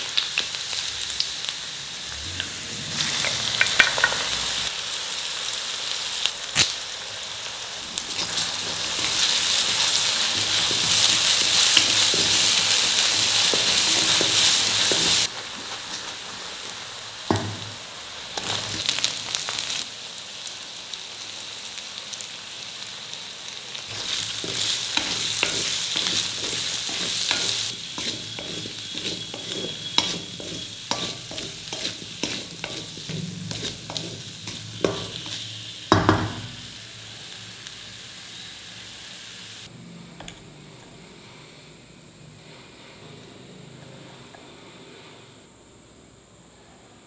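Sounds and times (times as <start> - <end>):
potatoes sizzling in oil: 0.0 - 39.7
metal spatula scraping pan: 8.1 - 15.3, 23.9 - 35.6.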